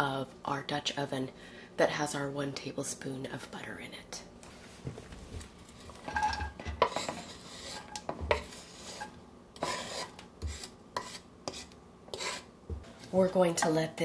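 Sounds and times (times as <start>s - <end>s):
spatula scraping cutting board: 5.7s - 13.8s.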